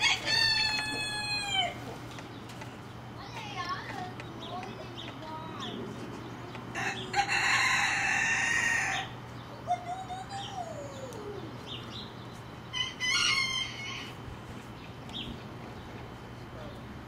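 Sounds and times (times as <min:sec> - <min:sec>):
rooster crowing: 0:00.0 - 0:01.8, 0:06.7 - 0:09.2, 0:12.7 - 0:14.2.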